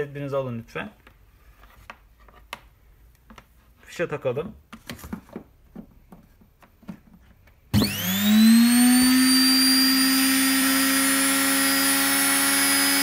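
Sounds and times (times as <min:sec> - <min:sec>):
motor high whine: 0:07.8 - 0:13.0.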